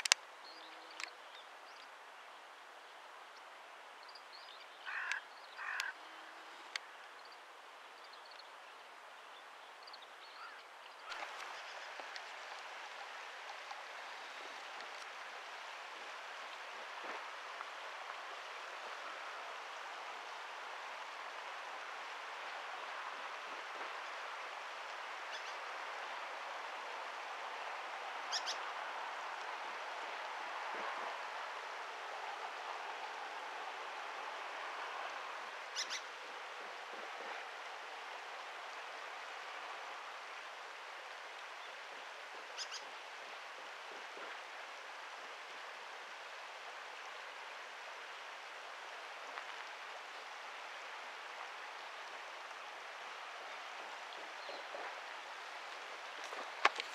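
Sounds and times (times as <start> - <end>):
steady outdoor hiss: 0.0 - 56.9
bird chirp: 35.8 - 36.0.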